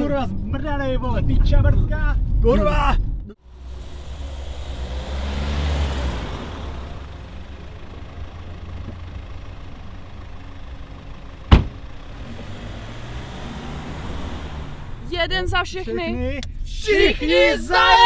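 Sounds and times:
car driving up and stopping: 0:03.4 - 0:15.6
car engine idling: 0:03.4 - 0:16.0
car door shutting: 0:11.5 - 0:11.9.

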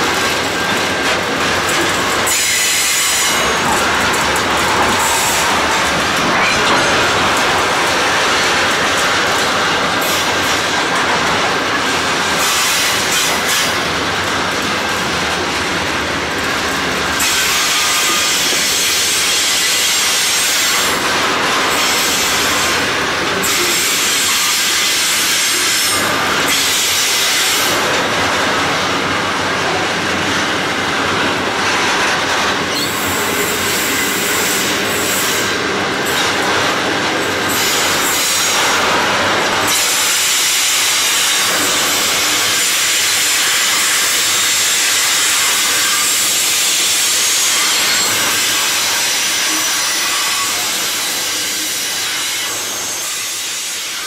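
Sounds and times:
steel wheels rattling on rail: 0:00.0 - 0:54.0
high wheel squeal: 0:02.1 - 0:08.3.

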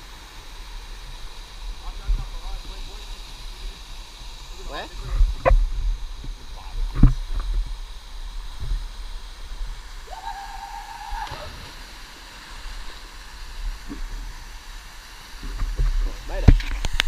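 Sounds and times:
water splashing and sloshing: 0:10.9 - 0:17.0.

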